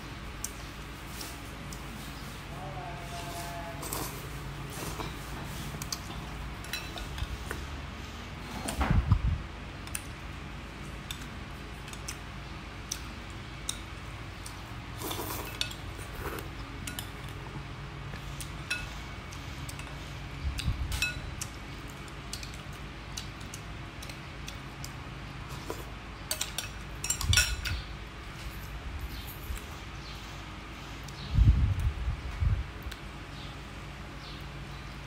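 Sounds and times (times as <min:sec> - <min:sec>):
spoon and chopsticks clinking on glass: 0:06.6 - 0:07.2, 0:26.3 - 0:27.8.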